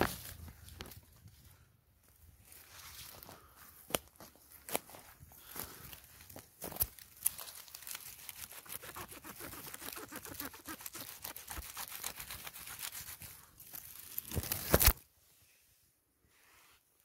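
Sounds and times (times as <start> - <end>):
leaf litter crackling and rustling: 6.6 - 13.1.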